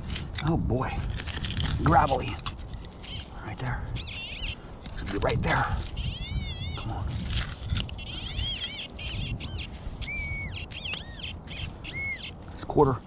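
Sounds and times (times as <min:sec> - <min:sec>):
scraping and crunching: 0:00.0 - 0:03.4, 0:04.6 - 0:06.0, 0:06.8 - 0:09.0.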